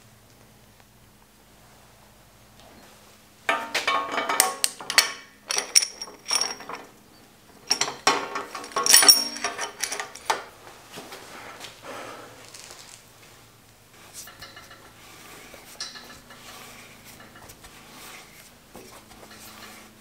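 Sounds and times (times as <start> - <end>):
metal parts clinking and rattling: 3.5 - 10.5, 15.8 - 16.4.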